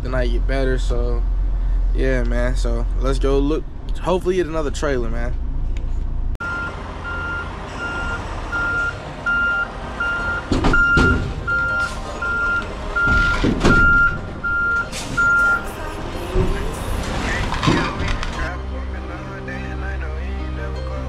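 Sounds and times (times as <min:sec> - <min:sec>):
truck engine rumble: 0:00.0 - 0:21.0
reversing alarm beeping: 0:06.4 - 0:16.0.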